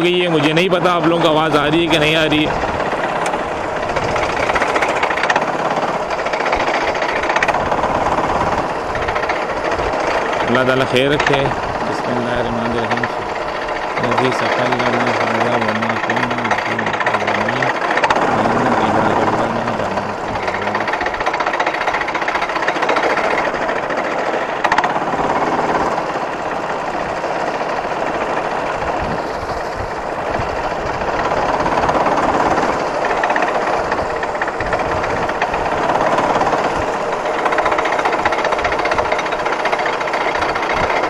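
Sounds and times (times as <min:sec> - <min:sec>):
chassis rattling: 0:00.0 - 0:41.0
go-kart engine running: 0:00.0 - 0:41.0.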